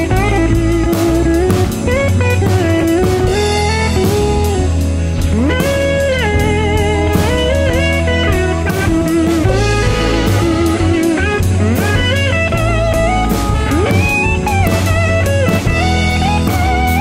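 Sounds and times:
bass line: 0:00.0 - 0:17.0
drum kit played with sticks: 0:00.0 - 0:17.0
electric guitar solo: 0:00.0 - 0:17.0.

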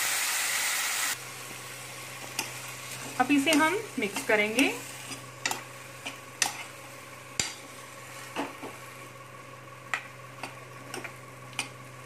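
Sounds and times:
metal spoon stirring potatoes: 0:02.2 - 0:08.5.

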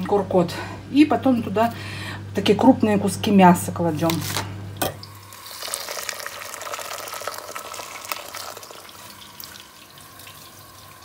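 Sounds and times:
water pouring into a steel pot: 0:05.1 - 0:11.0.

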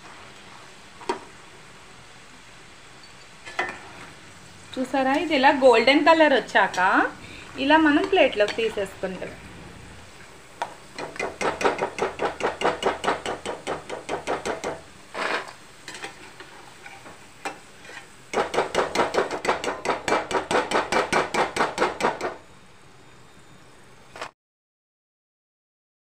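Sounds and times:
oil sizzling softly: 0:00.0 - 0:12.3, 0:14.7 - 0:18.4.

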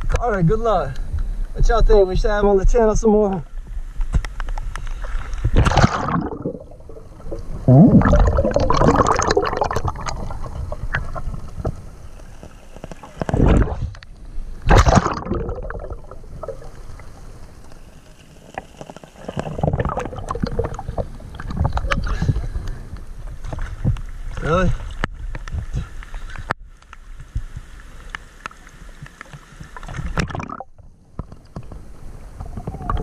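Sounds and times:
river water splashing: 0:05.6 - 0:13.8, 0:14.6 - 0:21.5.

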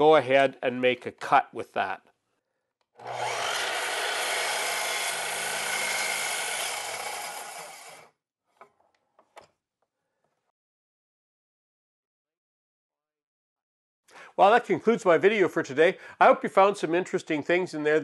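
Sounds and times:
miter saw cutting wood: 0:03.0 - 0:08.1.

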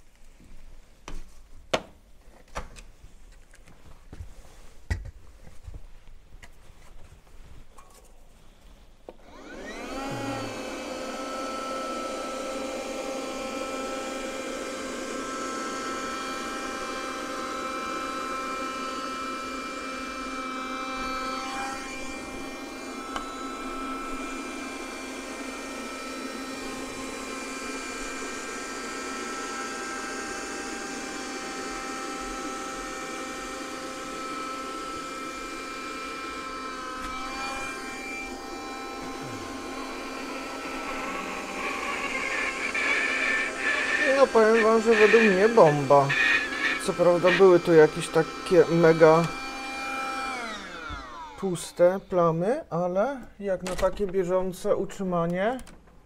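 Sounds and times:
window vacuum motor whine: 0:09.1 - 0:52.2.

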